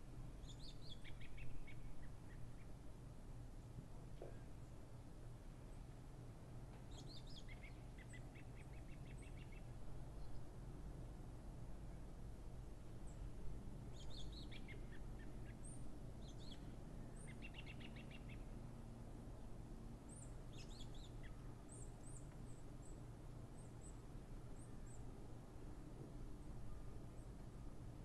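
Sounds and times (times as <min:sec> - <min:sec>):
outdoor background noise: 0:00.0 - 0:28.0
small birds chirping: 0:06.9 - 0:10.4, 0:13.9 - 0:18.6.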